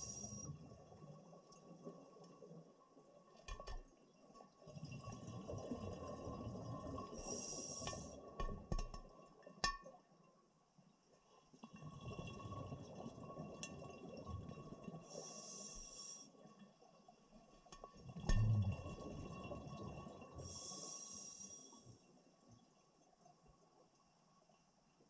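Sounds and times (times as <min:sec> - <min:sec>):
regulator inhale hiss: 0:00.0 - 0:00.5, 0:07.2 - 0:08.2, 0:15.1 - 0:16.4, 0:20.4 - 0:21.9
faint steady tone: 0:00.0 - 0:01.6, 0:07.2 - 0:08.2, 0:14.8 - 0:18.7, 0:19.9 - 0:25.0
exhaled bubbles gurgling: 0:04.6 - 0:08.8, 0:11.7 - 0:16.1, 0:17.9 - 0:21.4.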